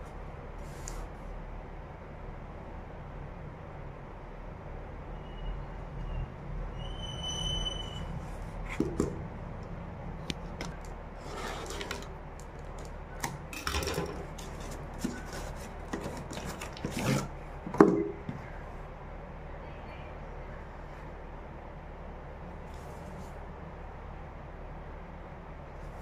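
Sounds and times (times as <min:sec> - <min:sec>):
cardboard scraping and handling: 0:10.4 - 0:13.0, 0:14.2 - 0:18.5.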